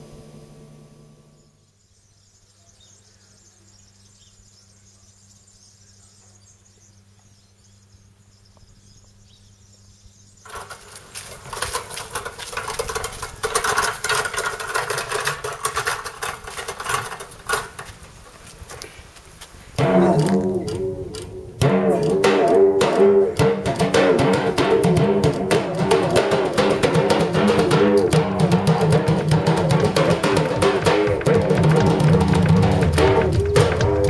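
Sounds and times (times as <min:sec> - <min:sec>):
faint steady hum: 0:00.0 - 0:34.0
loud dense crackling rustle: 0:10.5 - 0:19.8.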